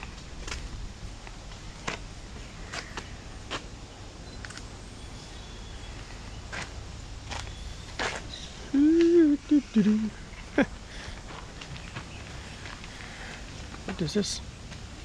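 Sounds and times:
steady low rumble: 0:00.0 - 0:15.0
footsteps on dirt path: 0:11.0 - 0:14.0.

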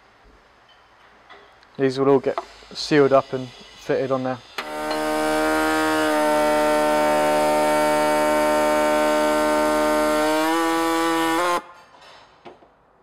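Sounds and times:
power tool cutting plastic: 0:04.6 - 0:11.6.

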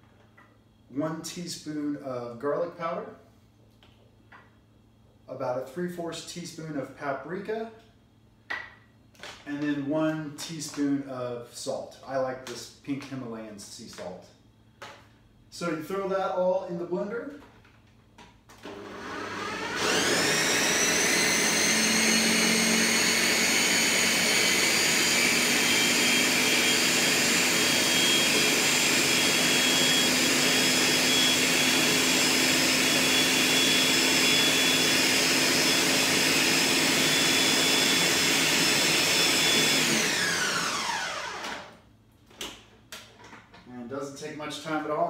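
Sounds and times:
blender motor whining: 0:18.6 - 0:41.8.

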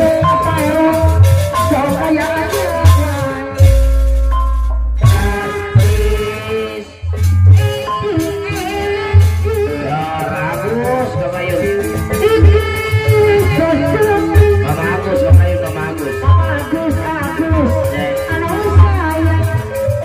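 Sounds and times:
pitched gamelan tones: 0:00.0 - 0:20.0
deep drum strokes: 0:02.8 - 0:06.5
woman singing: 0:05.1 - 0:10.5, 0:12.1 - 0:15.0.

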